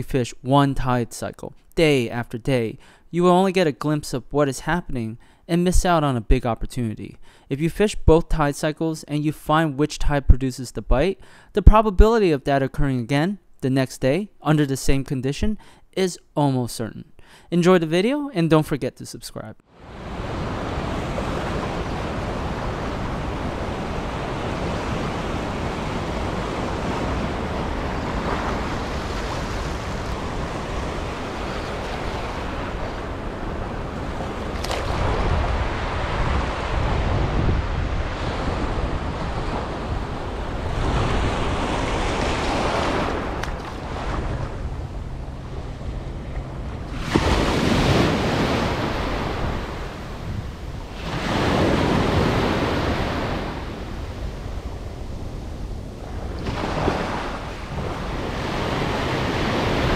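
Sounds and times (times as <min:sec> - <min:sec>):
ocean surf breaking: 0:19.7 - 0:59.9
wind noise on microphone: 0:20.0 - 0:59.9.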